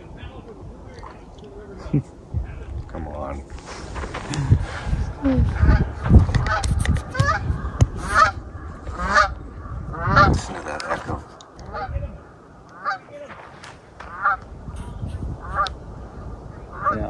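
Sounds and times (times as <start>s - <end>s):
geese honking: 5.5s - 17.0s.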